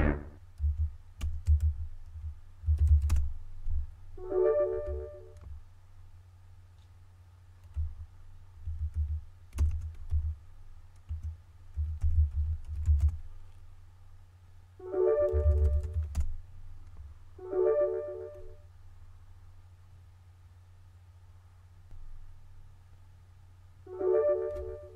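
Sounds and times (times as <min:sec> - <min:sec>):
typing on computer keyboard: 0:00.6 - 0:01.8, 0:02.6 - 0:03.3, 0:08.6 - 0:10.4, 0:11.0 - 0:13.2, 0:15.2 - 0:16.3.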